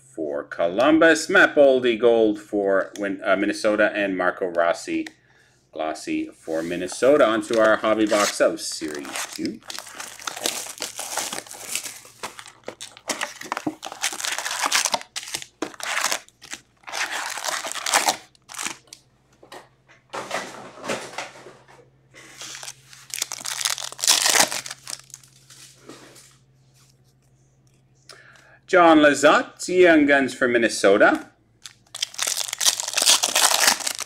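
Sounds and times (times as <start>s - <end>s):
foil packs rustling and tearing: 6.9s - 19.0s, 22.4s - 25.8s, 31.6s - 34.0s
plastic wrap crinkling and tearing: 6.9s - 19.0s, 22.4s - 25.8s, 31.6s - 34.0s.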